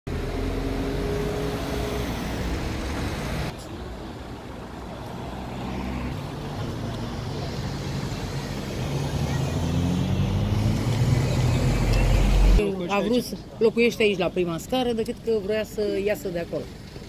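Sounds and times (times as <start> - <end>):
cars driving past: 0.1 - 12.8
low traffic rumble: 0.1 - 17.0.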